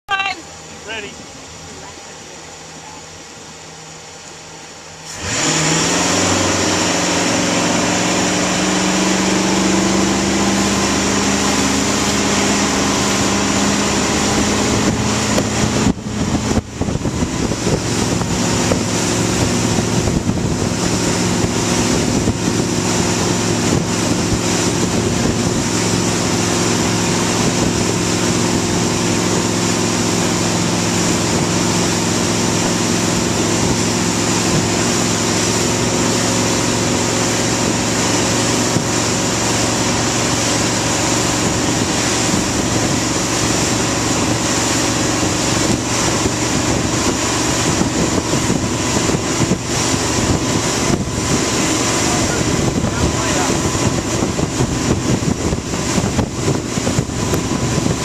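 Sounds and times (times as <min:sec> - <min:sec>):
churning wake: 0:00.1 - 0:58.0
motorboat engine: 0:00.1 - 0:58.0
wind rush: 0:05.1 - 0:58.0.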